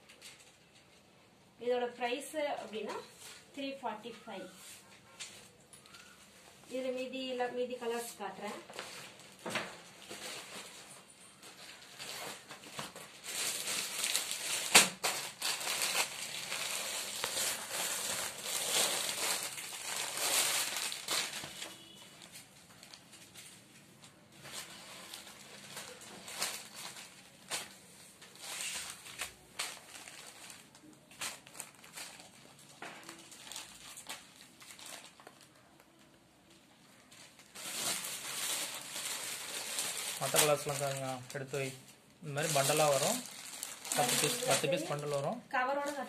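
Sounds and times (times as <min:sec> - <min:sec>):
plastic wrapping crinkling: 0:02.0 - 0:46.0
cloth rustling: 0:37.0 - 0:46.0.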